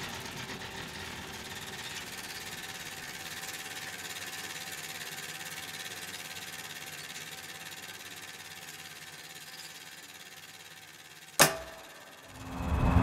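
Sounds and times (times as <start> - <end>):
film projector clatter: 0.0 - 12.2.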